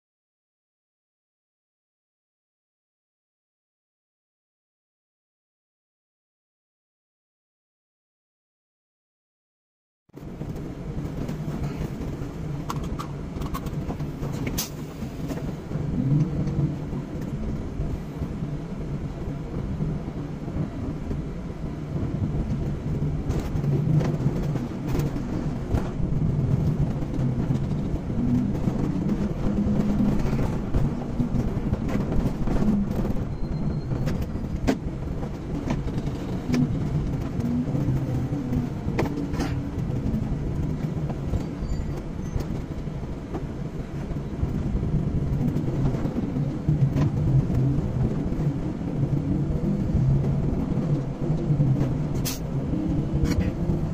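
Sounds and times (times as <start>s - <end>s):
road noise: 10.2s - 53.9s
car engine from inside cabin: 43.1s - 53.9s.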